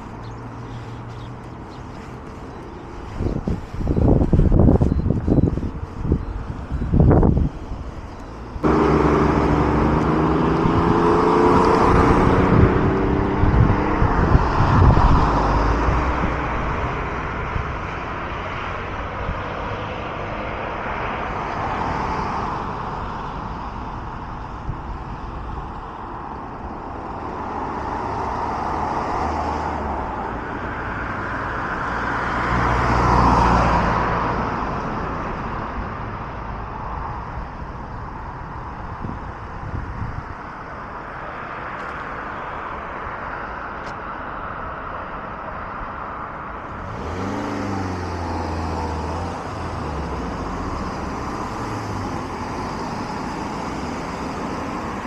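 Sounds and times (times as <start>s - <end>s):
cars passing: 0.0s - 55.0s
vehicle engine drone: 0.0s - 55.0s.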